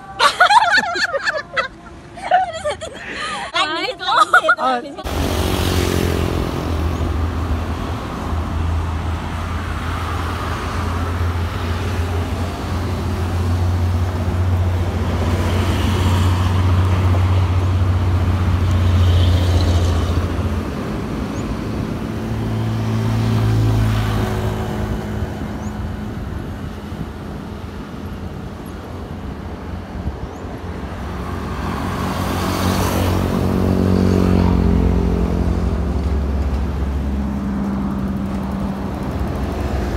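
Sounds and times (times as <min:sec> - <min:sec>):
highway traffic rumble: 0:00.0 - 0:39.9.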